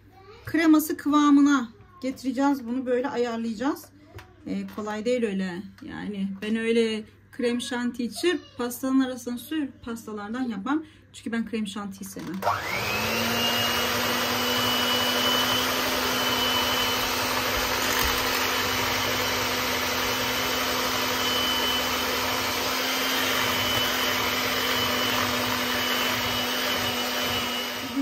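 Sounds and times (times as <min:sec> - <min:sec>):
beaters whipping cream in bowl: 0:12.1 - 0:28.0
electric hand mixer whine: 0:12.2 - 0:28.0.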